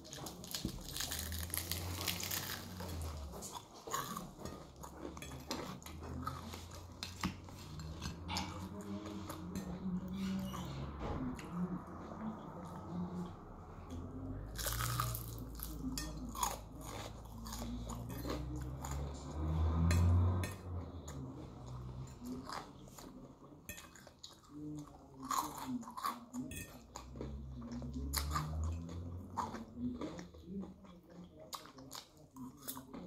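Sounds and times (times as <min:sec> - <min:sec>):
crunching crispy food: 0:00.0 - 0:04.4, 0:14.6 - 0:20.2
wet chewing: 0:00.0 - 0:09.7, 0:14.6 - 0:20.4.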